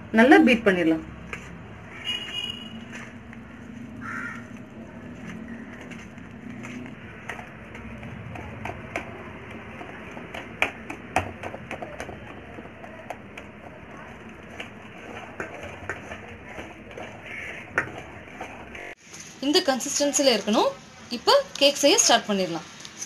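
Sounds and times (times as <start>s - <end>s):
whisk beating batter in metal bowl: 7.0s - 19.0s.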